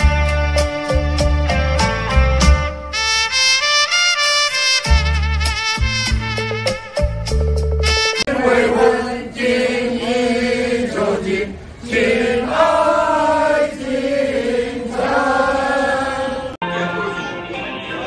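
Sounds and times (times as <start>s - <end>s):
instrumental phrase with heavy bass: 0.0s - 8.3s.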